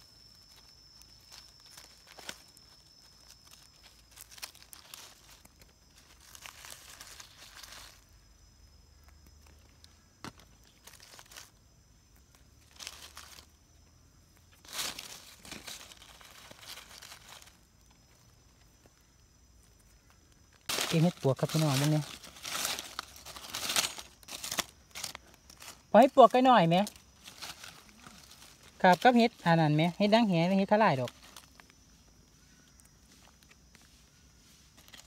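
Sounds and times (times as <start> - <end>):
dry leaves rustling: 0.0 - 35.0.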